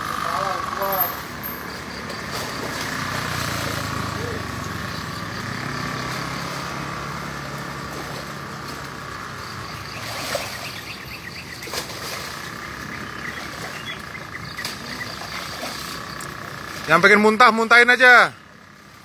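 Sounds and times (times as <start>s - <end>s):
low engine hum: 0.0s - 19.0s.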